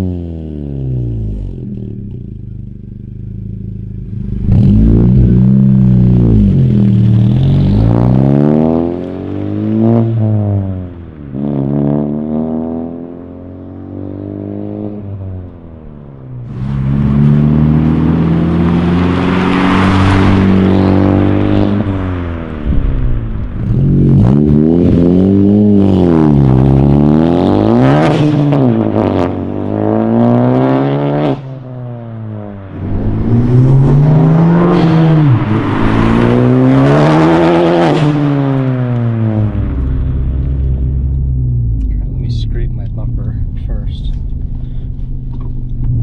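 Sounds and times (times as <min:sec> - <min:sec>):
car engine accelerating through gears: 0:00.0 - 0:46.0.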